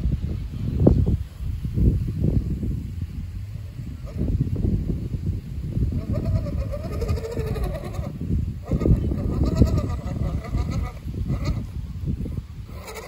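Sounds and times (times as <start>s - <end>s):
steady low rumble: 0.0s - 13.0s
animals bleating: 8.7s - 11.6s.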